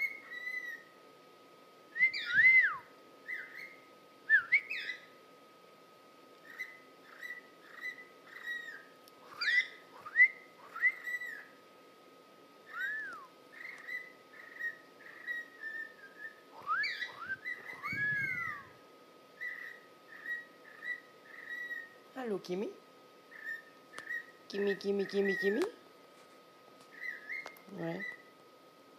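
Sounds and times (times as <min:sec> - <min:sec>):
cockatiel chirping and whistling: 0:00.0 - 0:00.8, 0:02.0 - 0:05.1, 0:06.4 - 0:11.5, 0:12.7 - 0:18.8, 0:19.4 - 0:21.9, 0:23.3 - 0:24.3, 0:27.0 - 0:28.2.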